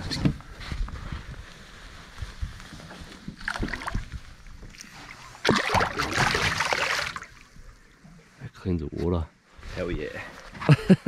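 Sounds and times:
fish splashing in water: 3.4 - 7.6.

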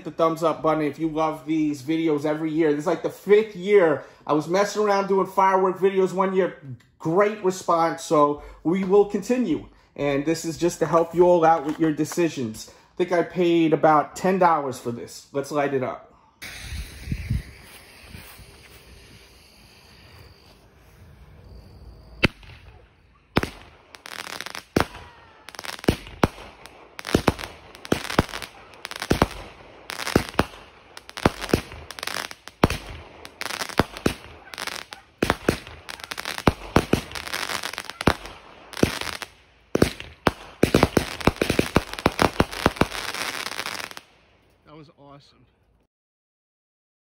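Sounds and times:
firework launch thumps and bursts: 16.4 - 19.4, 23.4 - 25.0, 25.8 - 44.0.

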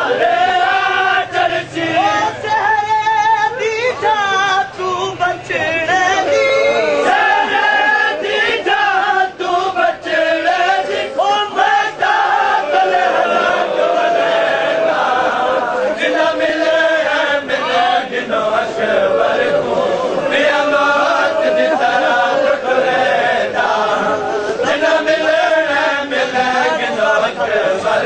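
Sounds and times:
men chanting a lament: 0.0 - 28.0.

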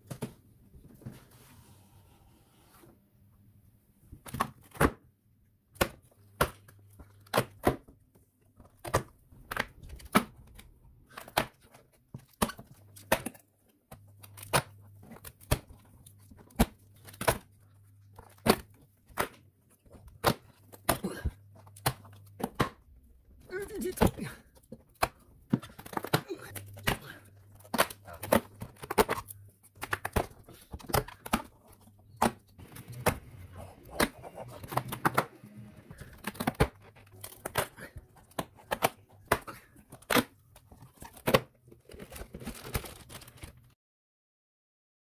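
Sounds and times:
cardboard snapping and tearing: 8.7 - 22.9, 23.7 - 43.7.

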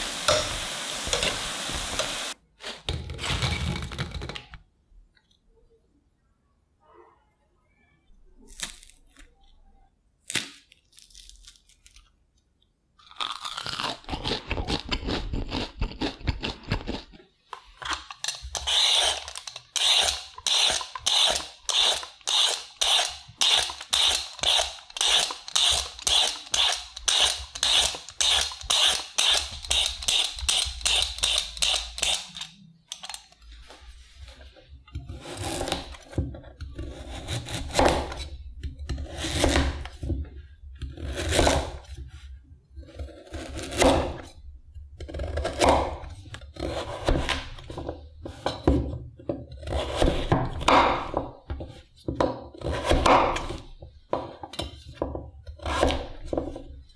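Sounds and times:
vegetable peeler scraping: 17.7 - 33.4, 35.0 - 40.0, 40.8 - 42.1, 42.8 - 44.3, 45.0 - 48.6, 49.5 - 51.1.

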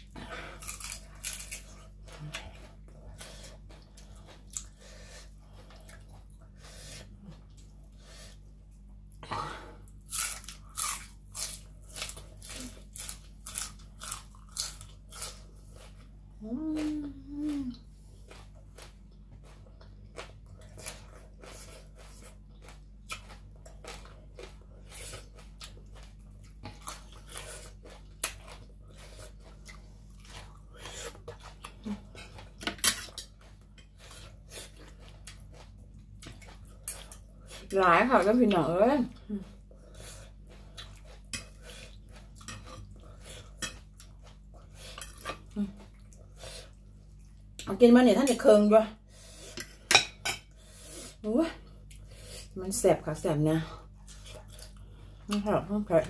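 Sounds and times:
crunching raw vegetables: 0.3 - 4.8
person humming: 16.4 - 17.8.

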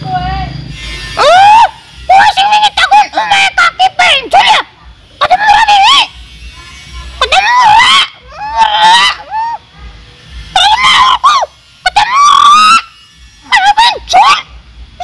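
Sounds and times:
man talking in shrill squealing voice: 1.2 - 6.1, 7.2 - 9.6, 13.5 - 14.5.

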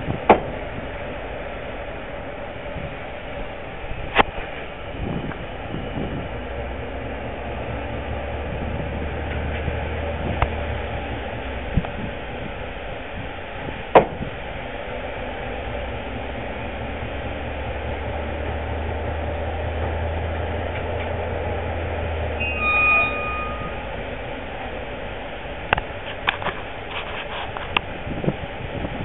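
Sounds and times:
locomotive diesel engine droning: 0.0 - 29.0
high toot: 22.4 - 24.0.

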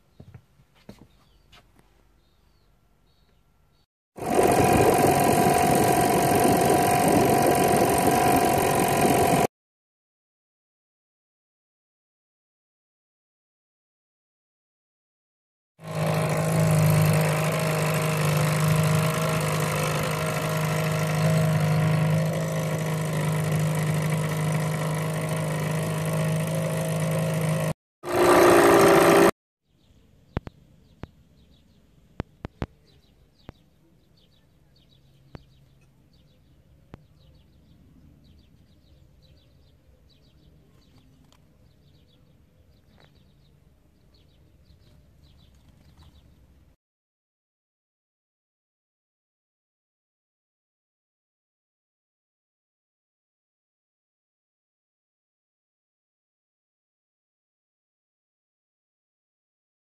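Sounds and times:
small bird chirping: 0.0 - 3.9, 29.7 - 46.6
outboard motor running: 4.2 - 9.5, 15.8 - 29.3.

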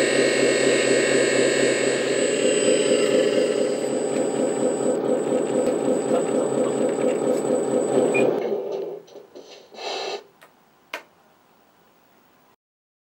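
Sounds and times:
toy truck mechanical buzz: 0.0 - 8.4.

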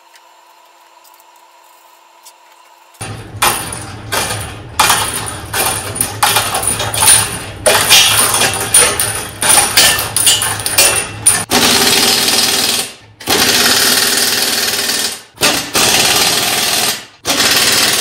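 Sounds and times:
metal clattering and knocking: 3.0 - 11.5
impact wrench bursts: 3.4 - 18.0.

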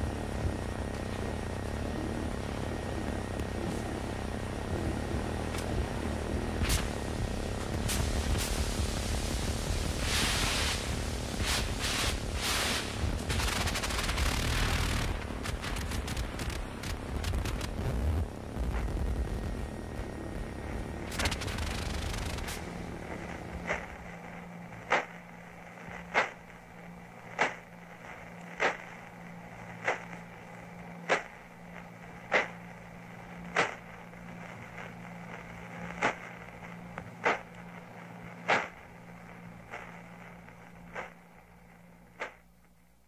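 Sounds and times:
steady low hum: 0.0 - 43.0
sharp pulsar clicks: 13.2 - 17.8, 21.1 - 22.6.

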